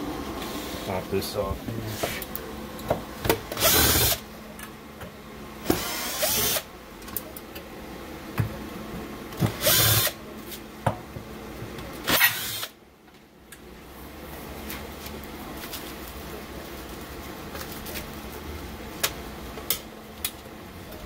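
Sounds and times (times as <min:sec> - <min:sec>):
steady machine hum: 0:00.0 - 0:21.0
cordless drill bursts: 0:03.6 - 0:04.2, 0:05.7 - 0:06.6, 0:09.5 - 0:10.2, 0:12.1 - 0:12.7.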